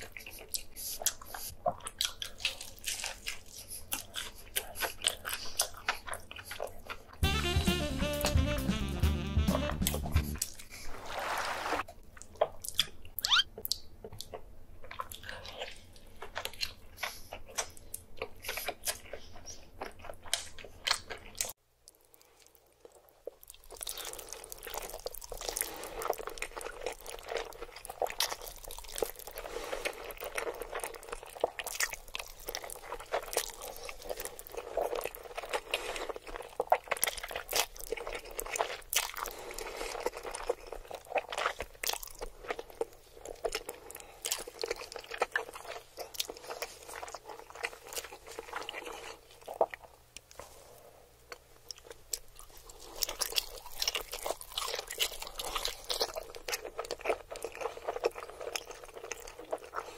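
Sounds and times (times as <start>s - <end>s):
wet chewing and slurping noodles: 0.0s - 7.2s, 10.2s - 59.9s
crunchy bites and chewing: 12.2s - 50.5s, 51.2s - 59.9s.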